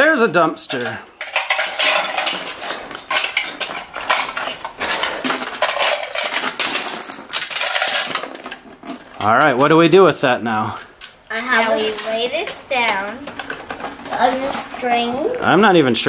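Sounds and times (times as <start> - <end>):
plastic toy bricks clattering: 0.6 - 9.7.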